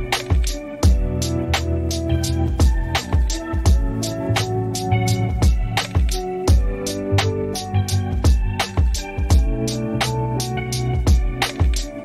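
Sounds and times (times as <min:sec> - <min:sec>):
steady drum beat: 0:00.0 - 0:12.0
sustained instrumental chords: 0:00.0 - 0:12.0.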